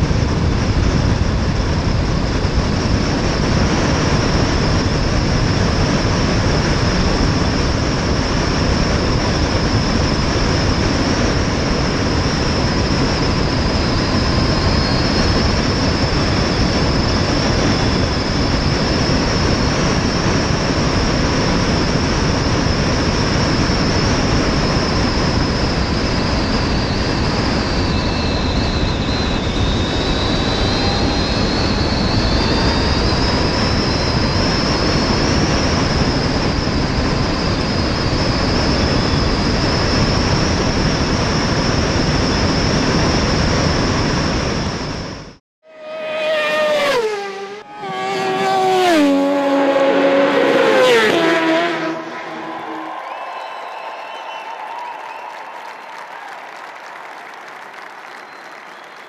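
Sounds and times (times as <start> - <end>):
wind rush on microphone: 0.0 - 45.4
electric motor whine: 24.6 - 39.3.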